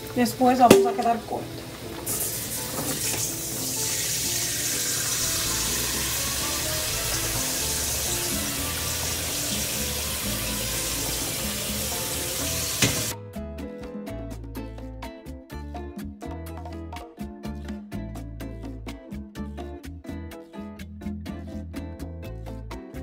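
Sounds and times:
water pouring into pot: 2.0s - 13.1s.

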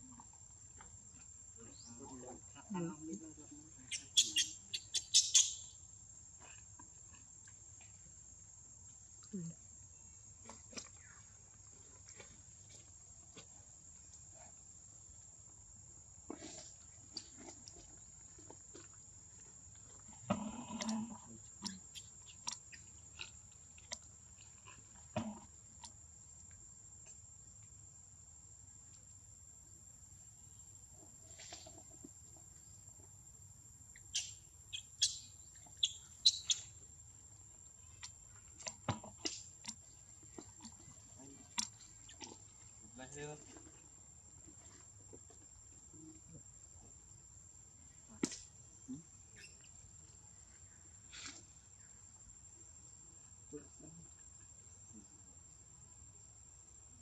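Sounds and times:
baby monkey squeaking cries: 4.0s - 5.6s.

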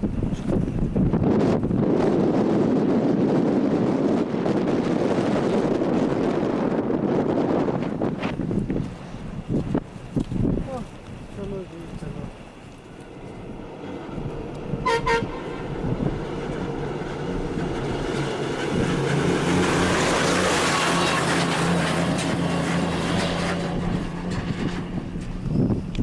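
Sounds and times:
vehicle engine and road noise: 0.0s - 26.0s
vehicle horn toot: 14.8s - 15.6s.

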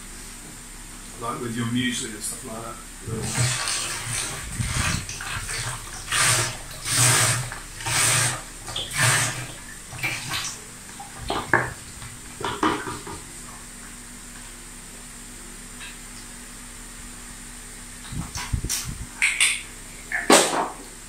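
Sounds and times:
juice pouring and splashing: 3.0s - 13.6s.

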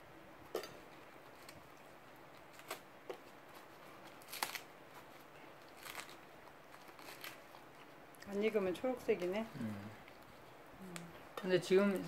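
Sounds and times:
seed pod snapping and crackling: 2.4s - 4.7s, 5.6s - 8.4s.

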